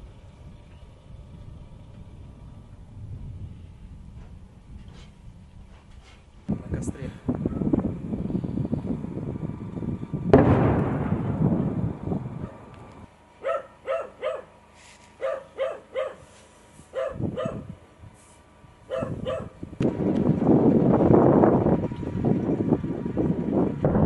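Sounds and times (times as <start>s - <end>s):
loud bang: 10.3s - 12.9s
dog barking: 13.4s - 14.5s, 15.2s - 16.3s, 16.9s - 17.7s, 18.9s - 19.6s.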